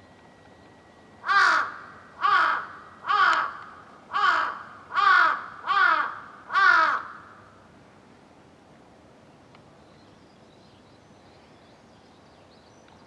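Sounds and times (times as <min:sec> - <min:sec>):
crow cawing: 0:01.2 - 0:07.4.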